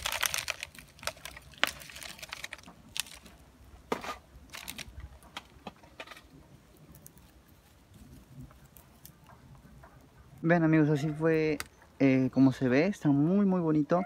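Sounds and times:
plastic pot crinkling: 0.0s - 9.7s.

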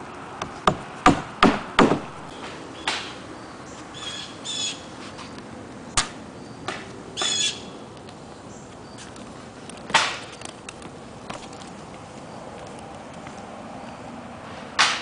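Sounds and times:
hammer blows on roof: 0.4s - 2.2s.

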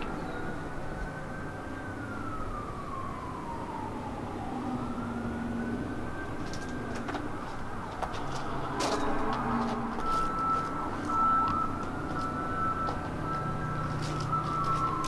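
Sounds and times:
emergency vehicle siren wailing: 0.0s - 15.0s.

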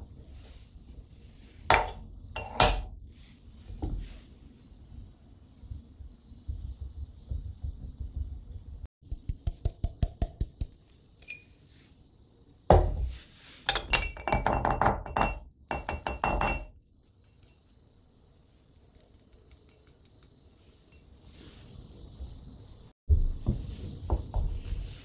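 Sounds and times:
metal funnel clinking on glass jar: 1.7s - 2.9s, 11.2s - 11.6s, 13.7s - 17.8s.

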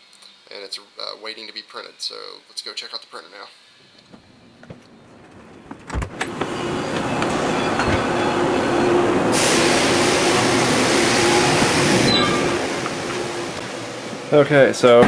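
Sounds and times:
machine shop din: 3.9s - 15.0s
bright hiss: 9.3s - 14.7s.

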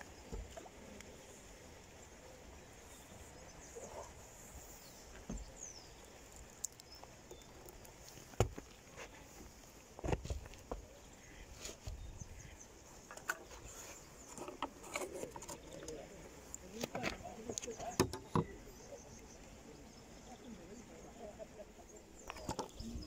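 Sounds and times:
faint bird chirps: 10.8s - 23.0s.

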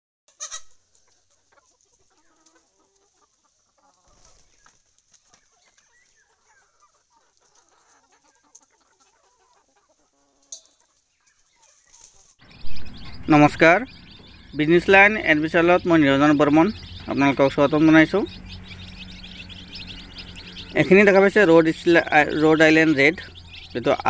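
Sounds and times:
hens clucking: 0.3s - 24.0s.

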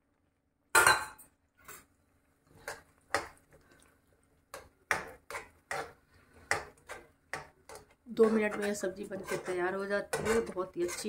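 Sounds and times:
metal spoon clattering on pan: 4.6s - 5.9s, 6.5s - 11.0s.

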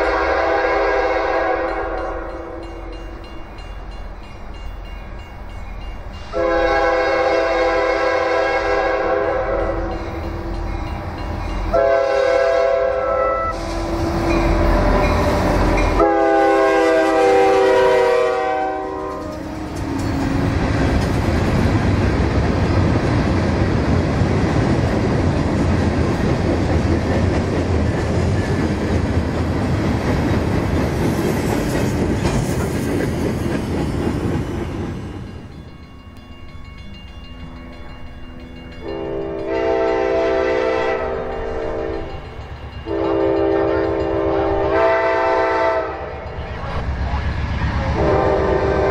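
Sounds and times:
train horn blasts: 0.0s - 2.9s, 6.3s - 10.1s, 11.7s - 20.4s, 38.8s - 42.2s, 42.8s - 46.3s, 48.0s - 48.9s
freight train rumble: 0.0s - 48.9s
wheels clattering on rails: 18.9s - 39.6s.

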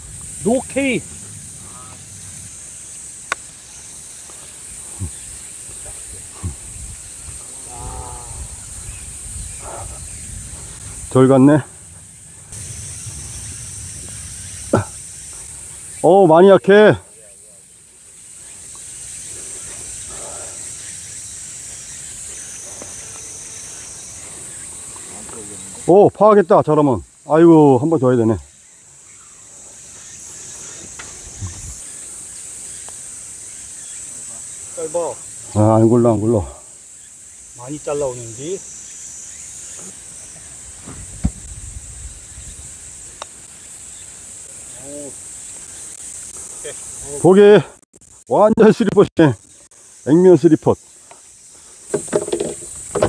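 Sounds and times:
chorus of insects: 0.0s - 53.0s
cicadas droning: 0.0s - 53.0s
sharp click: 3.3s - 3.5s
soft low thump: 40.8s - 41.6s.

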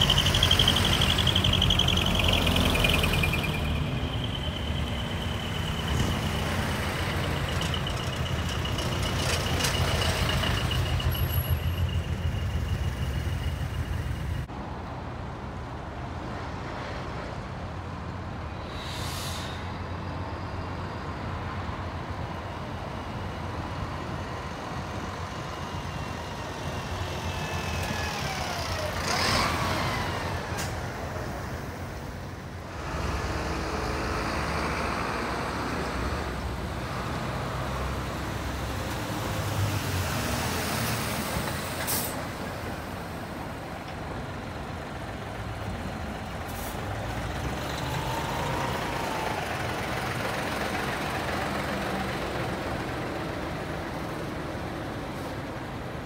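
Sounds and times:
truck passing close by: 0.0s - 14.5s, 24.9s - 56.0s
diesel truck engines: 0.0s - 56.0s
air brakes hissing: 18.5s - 20.1s, 41.7s - 42.4s, 46.4s - 46.9s.

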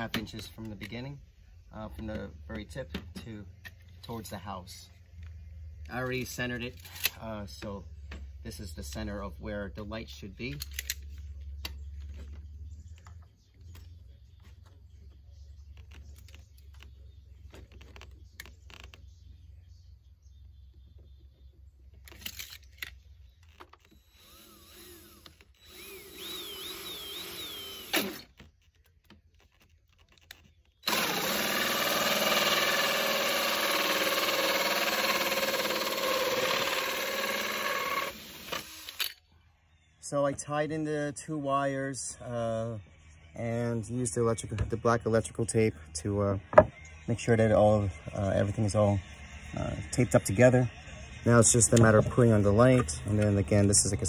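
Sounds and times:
power drill boring hole: 23.8s - 28.3s, 30.8s - 39.1s.

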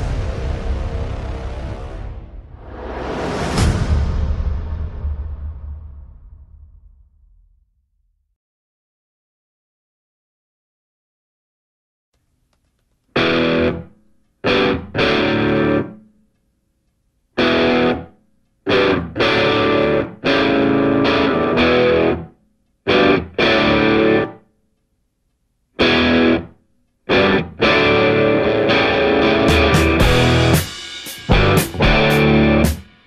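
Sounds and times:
distorted electric guitar chords: 0.0s - 2.4s, 13.2s - 16.0s, 17.4s - 18.1s, 18.7s - 22.3s, 22.9s - 24.4s, 25.8s - 26.5s, 27.1s - 32.9s.

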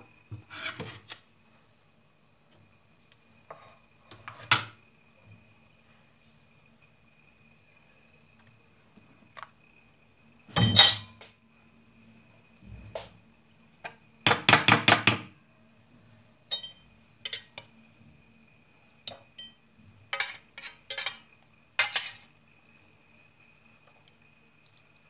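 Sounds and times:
utensils clinking on dishes: 10.6s - 11.2s, 16.5s - 17.7s, 19.1s - 22.3s.

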